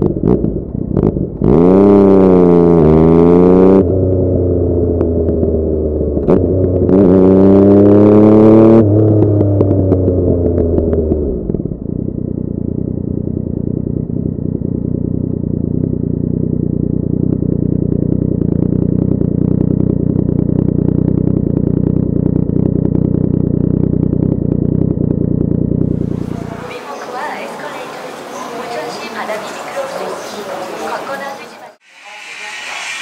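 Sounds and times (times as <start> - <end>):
motorcycle engine idling: 11.8 - 26.7.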